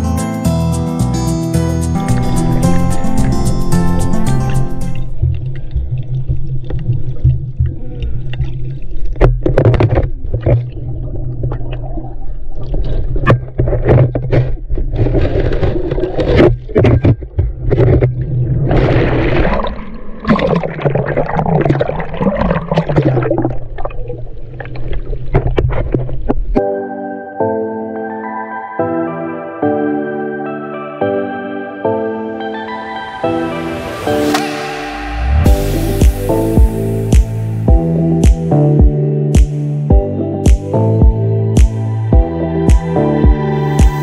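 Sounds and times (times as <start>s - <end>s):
low rumble: 1.8s - 13.2s, 33.5s - 39.0s
water surging underwater: 2.0s - 26.6s, 33.2s - 37.7s
bubbling rushes of water: 2.2s - 26.6s.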